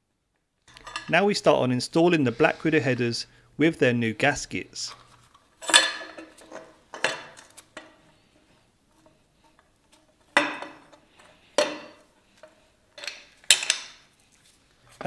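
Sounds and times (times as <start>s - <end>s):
metal pipe clinking and scraping: 0.7s - 1.2s, 4.9s - 14.1s.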